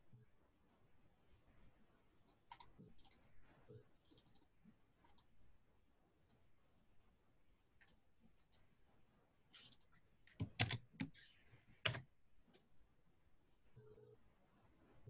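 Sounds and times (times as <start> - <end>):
computer mouse and key clicks: 2.2 - 3.4, 4.0 - 5.4, 7.8 - 8.7, 9.6 - 12.6.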